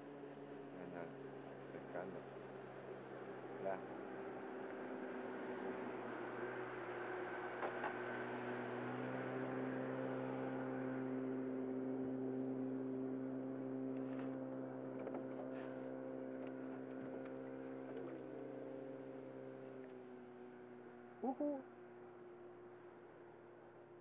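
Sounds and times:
distant motorboat engine: 0:00.0 - 0:24.0
short rising calls: 0:21.1 - 0:21.8.

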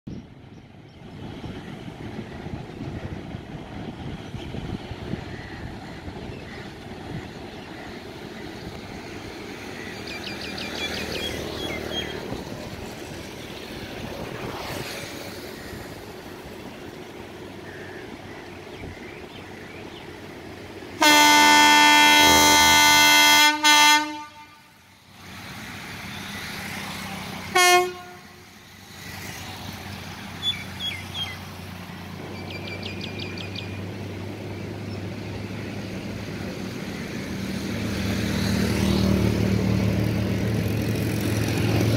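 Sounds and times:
locomotive horn blasts and toots: 0:21.0 - 0:24.8, 0:27.5 - 0:28.4.

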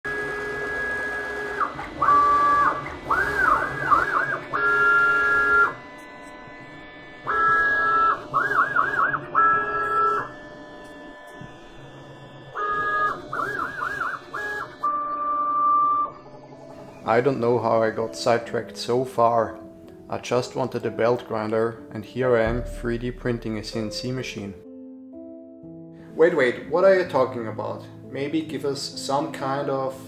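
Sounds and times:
stepper motors whining: 0:00.1 - 0:17.0.

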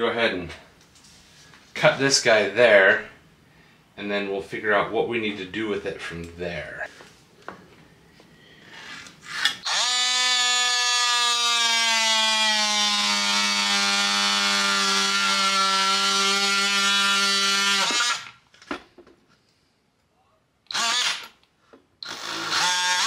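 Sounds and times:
oscillating multi-tool cutting: 0:08.8 - 0:18.4, 0:20.7 - 0:21.4, 0:22.0 - 0:23.0.

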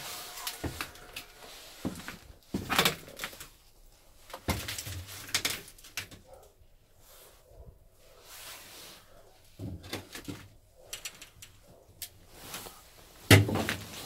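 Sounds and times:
metal creaks: 0:00.0 - 0:02.2.

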